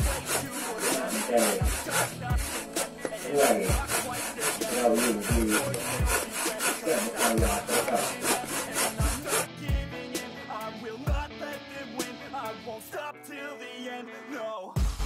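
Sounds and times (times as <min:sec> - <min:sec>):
hand saw sawing wood: 0:00.0 - 0:09.5.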